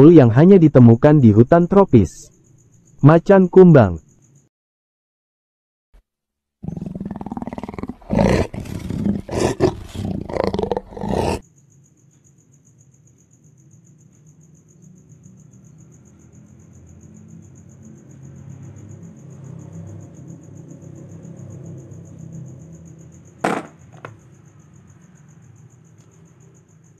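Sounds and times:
panther roaring: 6.6 - 11.4.

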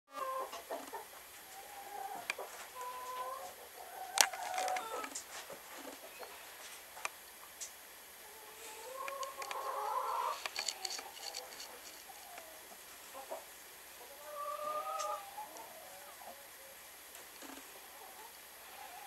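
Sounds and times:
hen calling: 1.4 - 5.2, 8.2 - 13.4, 14.0 - 16.7.

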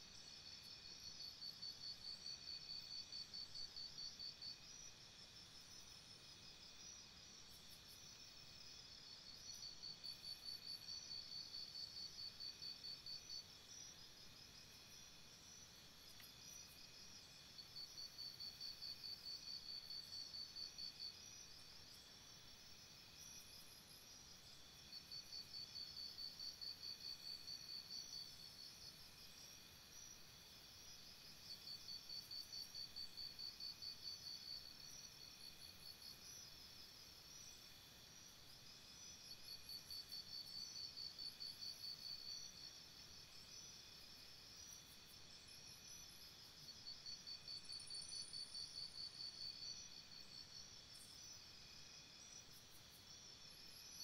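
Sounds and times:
insect rapid pulses: 0.1 - 54.0.

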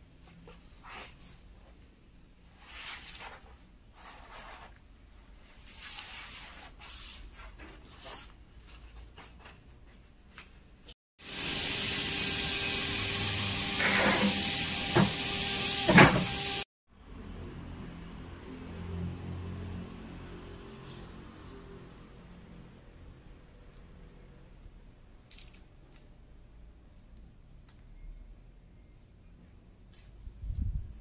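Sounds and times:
woodworking machine running: 11.2 - 16.6.

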